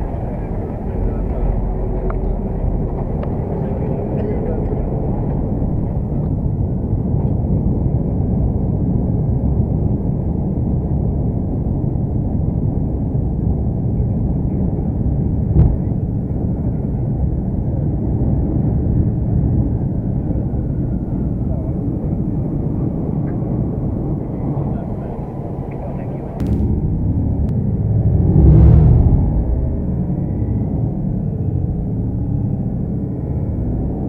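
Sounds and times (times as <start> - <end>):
jet engine rumble in cabin: 0.0 - 34.0
sharp engine bang: 15.6 - 16.0, 26.4 - 30.1.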